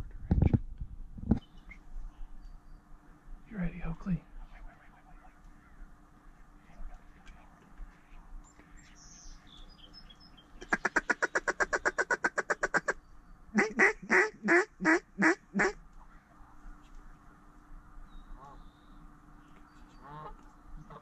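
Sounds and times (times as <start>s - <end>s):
duck quacking: 13.6s - 15.8s.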